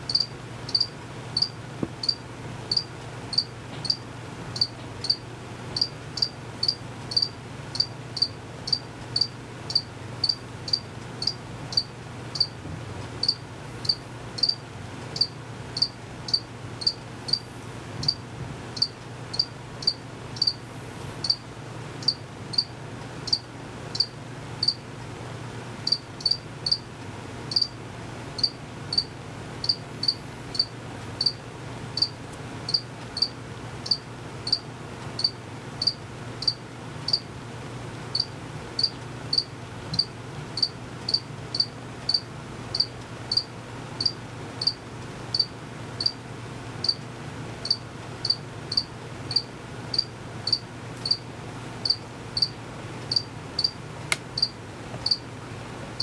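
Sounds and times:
cricket chirping: 0:00.1 - 0:04.0, 0:04.6 - 0:05.2, 0:05.8 - 0:12.6, 0:13.2 - 0:14.6, 0:15.2 - 0:17.4, 0:18.8 - 0:20.6, 0:21.2 - 0:21.4, 0:22.0 - 0:22.7, 0:23.3 - 0:24.8, 0:25.9 - 0:26.8, 0:27.5 - 0:27.8, 0:28.4 - 0:31.4, 0:32.0 - 0:34.6, 0:35.2 - 0:37.2, 0:38.2 - 0:46.2, 0:47.6 - 0:51.2, 0:51.8 - 0:53.8, 0:54.4 - 0:55.2.

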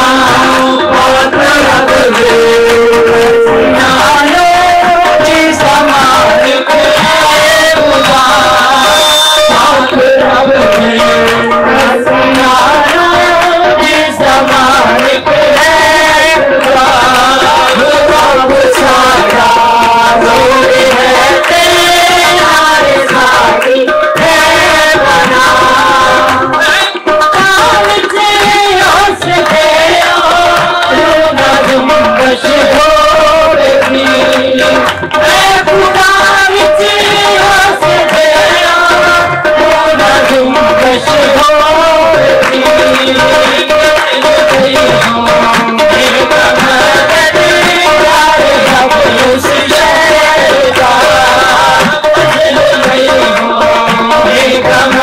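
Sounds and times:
hand drum beat: 0:00.0 - 0:55.0
worship song singing: 0:00.0 - 0:55.0.

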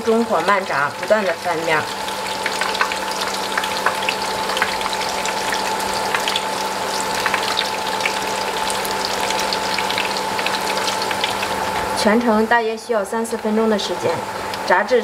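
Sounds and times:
oil sizzling with crackles: 0:00.0 - 0:15.0.

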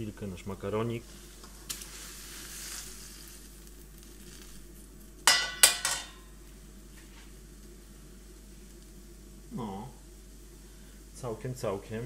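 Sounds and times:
boiling water hissing: 0:00.0 - 0:12.0
metal strainer clanking in pan: 0:05.3 - 0:06.2.

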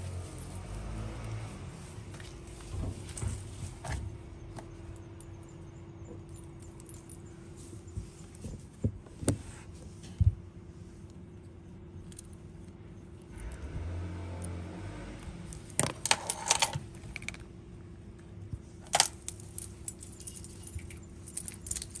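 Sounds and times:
cat collar tag and beads jingling: 0:05.0 - 0:07.9, 0:19.0 - 0:22.0.

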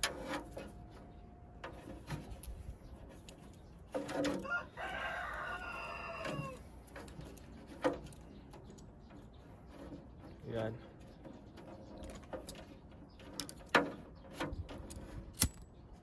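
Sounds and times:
rooster crowing: 0:04.4 - 0:06.6.

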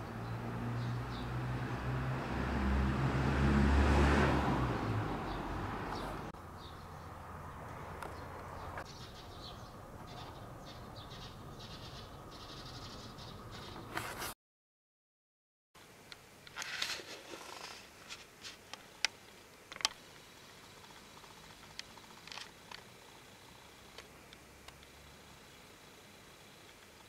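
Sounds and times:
small birds chirping: 0:00.0 - 0:01.4, 0:04.8 - 0:14.0
car passing by: 0:00.0 - 0:06.3.

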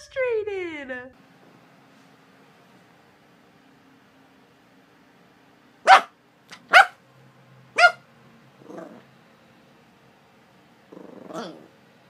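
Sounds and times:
puppy barking: 0:05.8 - 0:07.0, 0:07.7 - 0:08.0
puppy yip: 0:05.9 - 0:07.0, 0:07.8 - 0:08.0.

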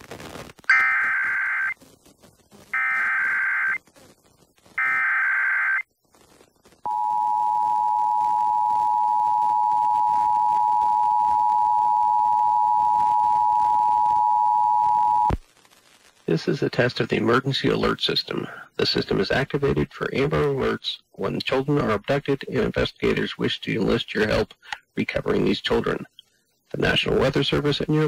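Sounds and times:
digital data bursts: 0:00.7 - 0:01.8, 0:02.6 - 0:03.8
two-tone attention signal: 0:06.9 - 0:15.3.

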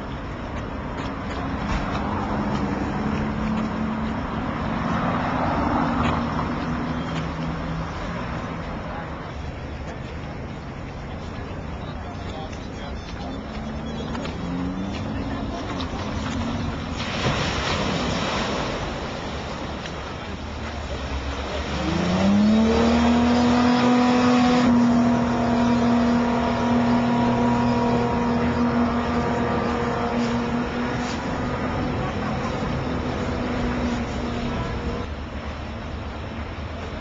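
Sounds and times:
broad rush of water noise: 0:00.0 - 0:37.0
boat engine revving: 0:12.7 - 0:35.2.

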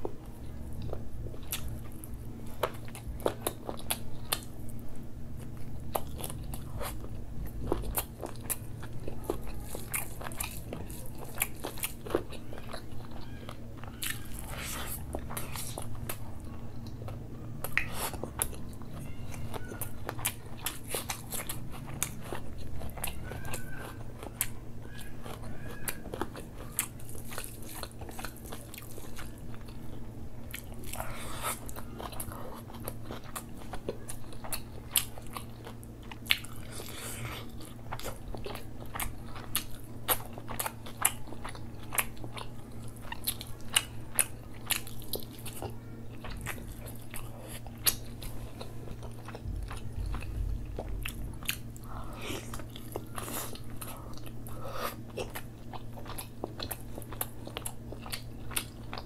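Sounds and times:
low steady hum: 0:00.0 - 0:59.0
person chewing food: 0:00.0 - 0:59.0.

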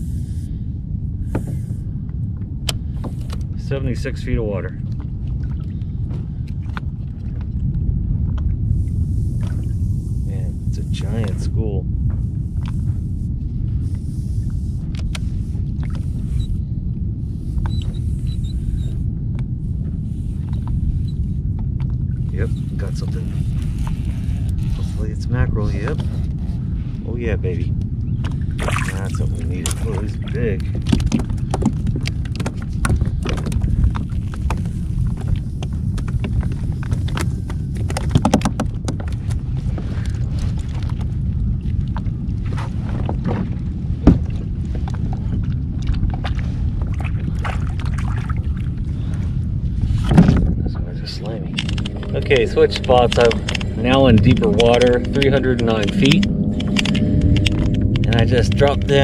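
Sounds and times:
wind rumbling on microphone: 0:00.0 - 0:59.0
fishing tackle clicks and knocks: 0:29.6 - 0:39.4, 0:51.5 - 0:59.0.

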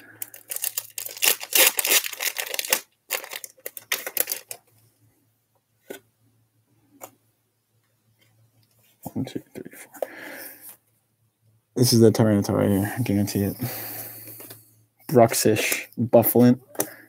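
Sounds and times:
foil wrapper tearing and crinkling: 0:00.2 - 0:04.6.

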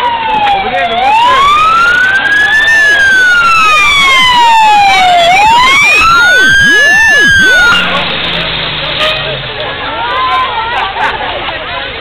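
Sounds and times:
fire engine siren wailing: 0:00.0 - 0:08.7.

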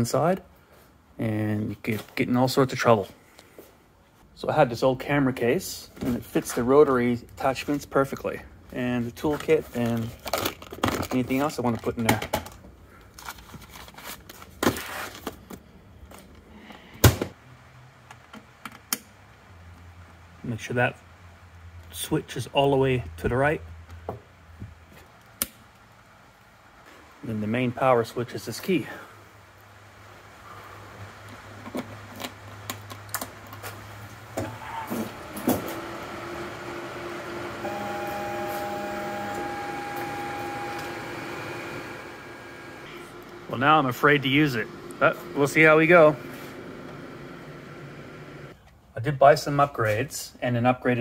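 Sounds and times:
paper pages rustling: 0:13.1 - 0:15.5
machine humming: 0:34.0 - 0:48.6
short machine whine: 0:34.4 - 0:48.5.

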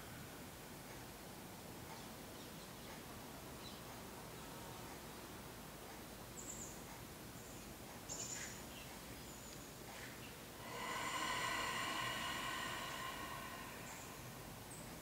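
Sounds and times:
person exhaling through nose: 0:10.6 - 0:15.0.

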